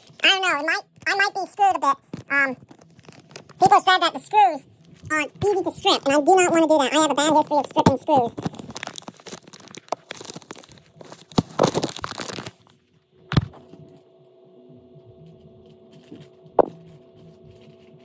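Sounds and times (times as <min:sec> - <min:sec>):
faint steady hum: 0:00.0 - 0:18.0
handling rustling and crackling: 0:02.0 - 0:03.7, 0:07.9 - 0:12.8.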